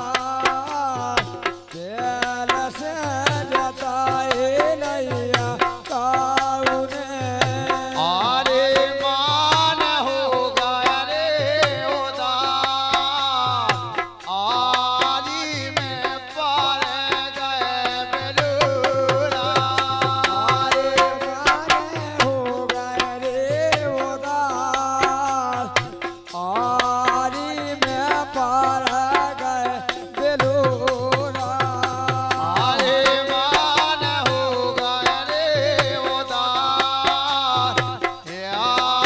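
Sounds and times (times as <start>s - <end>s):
hand drum beating: 0.0s - 10.6s, 17.8s - 39.0s.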